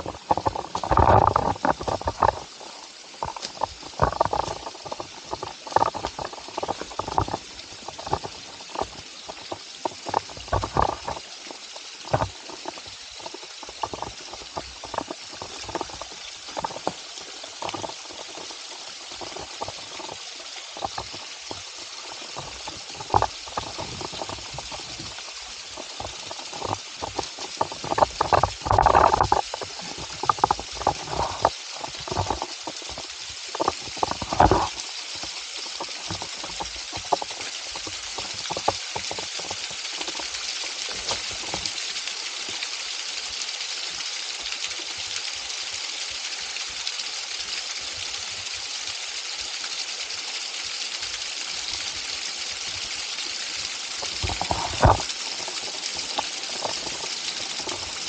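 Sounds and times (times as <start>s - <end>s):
stream running over rocks: 0.0s - 58.0s
knocks and clatters: 3.2s - 11.2s, 54.0s - 57.9s.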